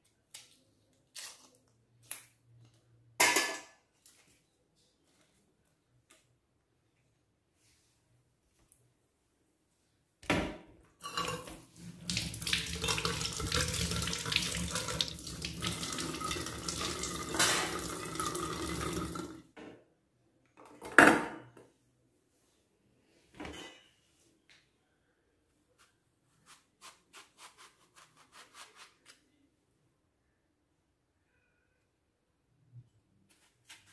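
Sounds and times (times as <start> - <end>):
tap water running into sink: 11.0 - 19.4.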